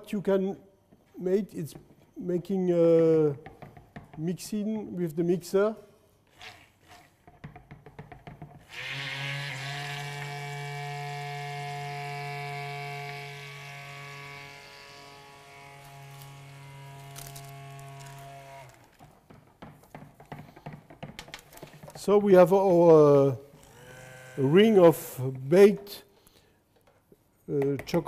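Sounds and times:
stick blender motor hum: 8.7s - 19.0s, 23.5s - 24.8s.

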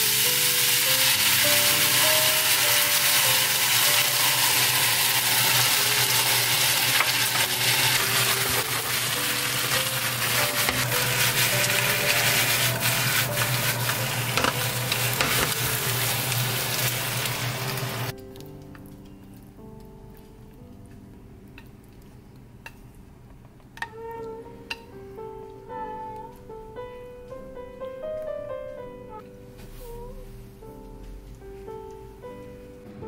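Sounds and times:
sauce sizzling in a frying pan: 0.0s - 18.1s.

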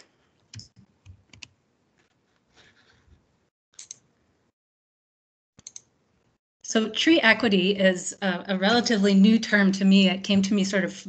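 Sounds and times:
keyboard and mouse clicks: 0.4s - 2.2s, 3.8s - 4.0s, 5.6s - 5.9s.

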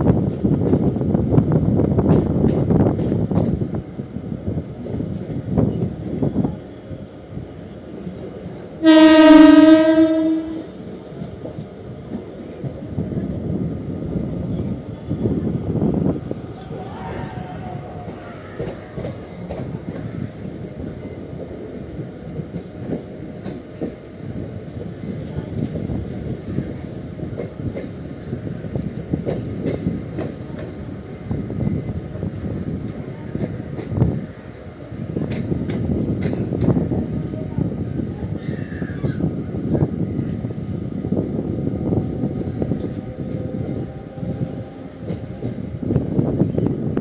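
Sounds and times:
train rumbling on tracks: 0.0s - 47.0s
train horn blast: 8.8s - 10.8s.

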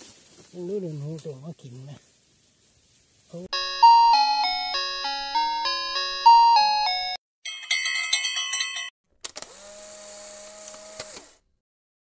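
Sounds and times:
bell-like chime melody: 3.5s - 9.0s.

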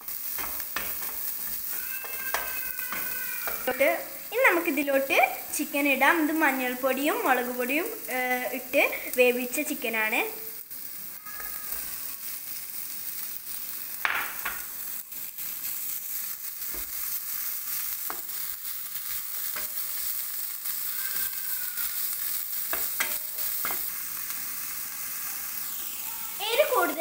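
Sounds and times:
food sizzling in a frying pan: 0.0s - 27.0s
spatula knocking against pan: 0.3s - 3.7s.

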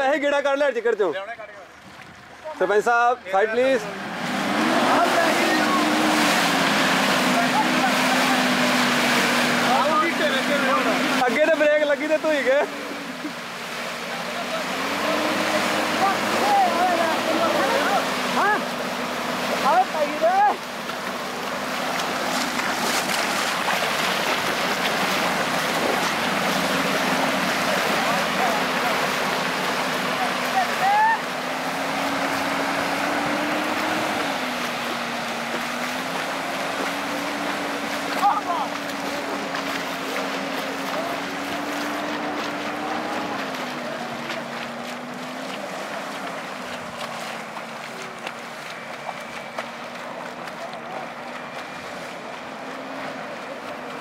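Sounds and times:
muddy water churning and splashing: 0.0s - 54.0s
diesel engine running: 1.6s - 54.0s.

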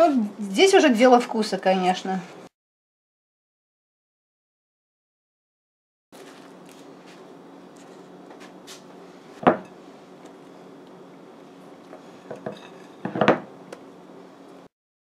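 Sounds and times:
steady low hum: 6.2s - 14.7s.

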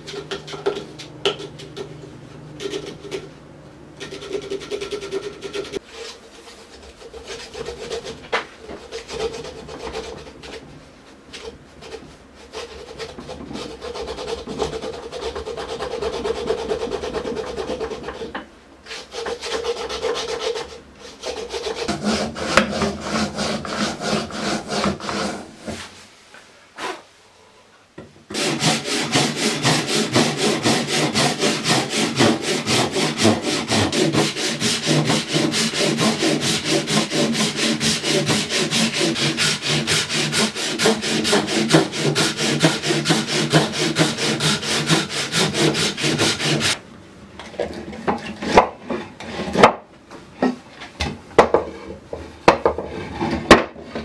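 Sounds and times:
handsaw cutting wood: 4.0s - 5.8s, 6.7s - 10.6s, 11.8s - 25.6s, 28.3s - 46.8s.

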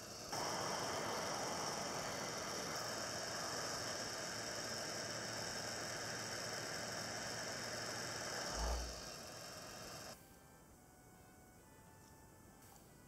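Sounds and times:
heat gun blowing hiss: 0.0s - 10.2s.

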